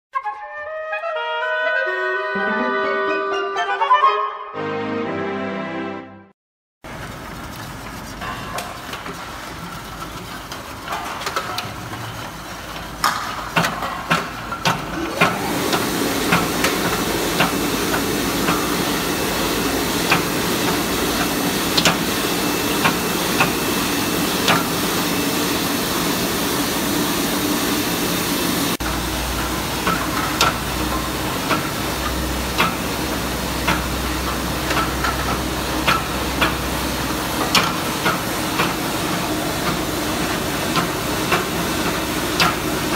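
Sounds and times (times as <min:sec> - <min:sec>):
machine hiss and hum: 0:14.3 - 0:42.9.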